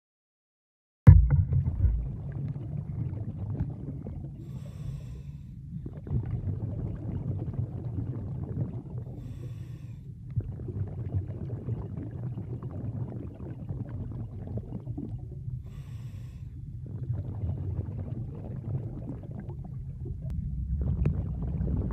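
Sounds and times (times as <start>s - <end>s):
underwater rumble of moving water: 1.1s - 21.9s
swimmer hissing breaths: 4.4s - 5.6s, 9.2s - 10.1s.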